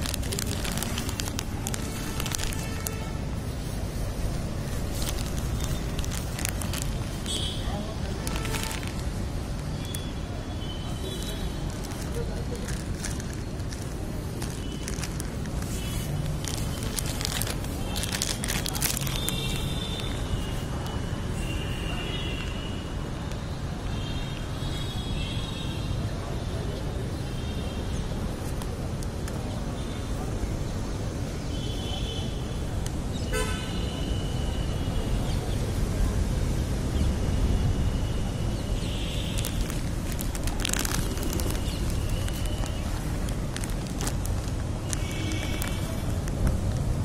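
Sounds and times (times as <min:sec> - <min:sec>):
sharp clicks and crackles: 0:00.0 - 0:03.1, 0:04.2 - 0:10.1, 0:11.0 - 0:21.0, 0:38.7 - 0:47.0
traffic rumble: 0:00.0 - 0:47.0
vehicle horns honking: 0:07.3 - 0:08.9, 0:33.3 - 0:35.0.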